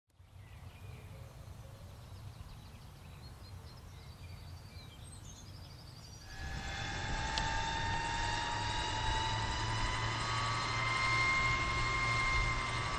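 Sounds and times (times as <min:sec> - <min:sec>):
low rumble with high chirps: 0:00.2 - 0:12.9
model helicopter rotor whine: 0:06.2 - 0:12.9.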